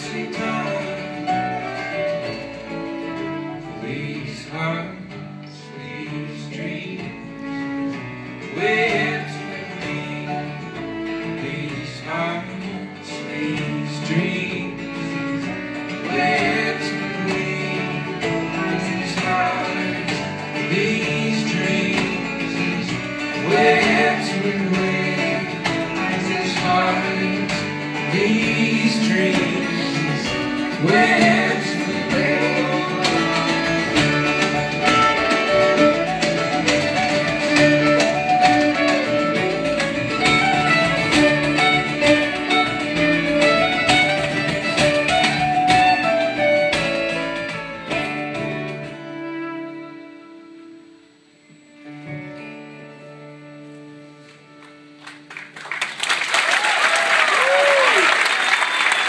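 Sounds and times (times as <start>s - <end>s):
person singing: 0.0s - 2.2s, 16.0s - 39.7s
upright bass: 0.0s - 49.4s
mandolin: 0.0s - 50.9s
fiddle: 0.0s - 51.0s
acoustic guitar: 0.0s - 59.0s.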